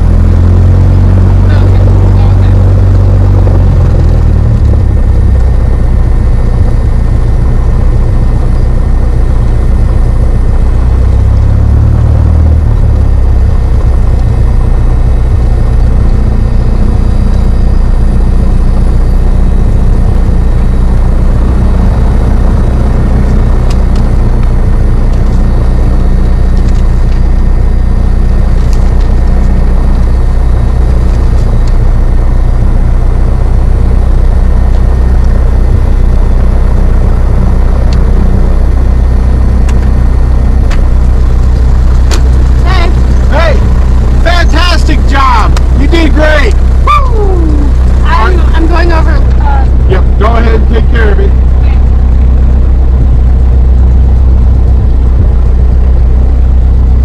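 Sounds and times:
light aircraft engine and propeller: 0:12.5 - 0:57.0.

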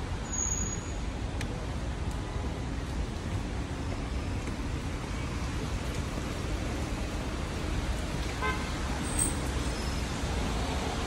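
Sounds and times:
rain: 0:00.0 - 0:11.0
road traffic noise: 0:00.0 - 0:11.0
car horn toot: 0:08.4 - 0:08.7.

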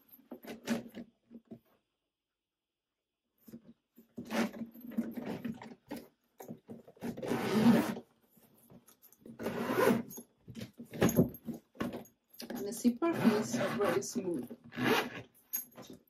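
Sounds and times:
zipper being drawn open: 0:07.0 - 0:08.0, 0:09.4 - 0:10.2, 0:13.1 - 0:14.0, 0:14.7 - 0:15.3.

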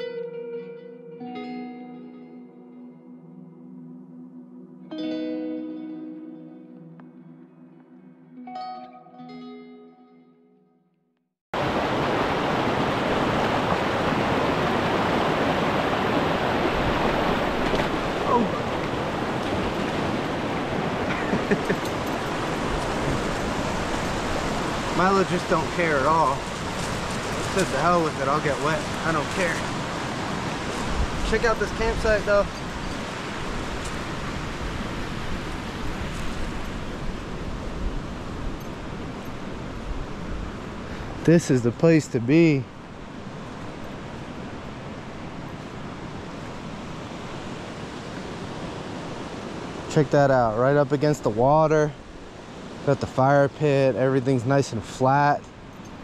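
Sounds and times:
creek water rushing: 0:11.6 - 0:56.0.

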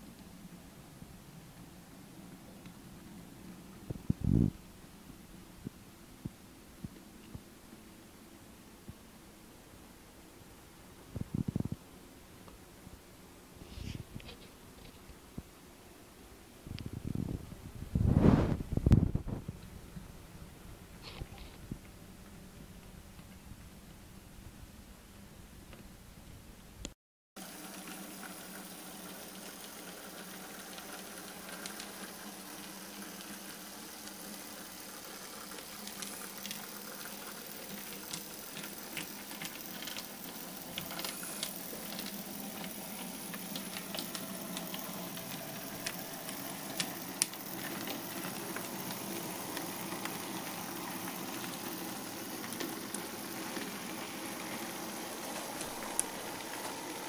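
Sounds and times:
model train hissing running noise: 0:27.4 - 0:57.0.

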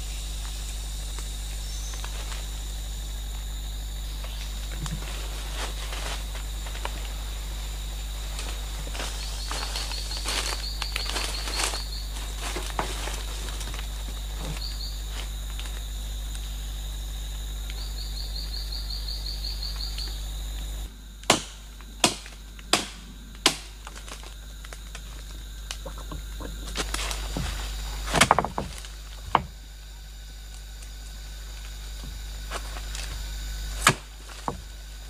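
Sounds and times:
high insect drone: 0:00.0 - 0:35.0
insects trilling: 0:00.0 - 0:35.0
blade hacking into wood: 0:21.2 - 0:23.9, 0:28.1 - 0:29.5.

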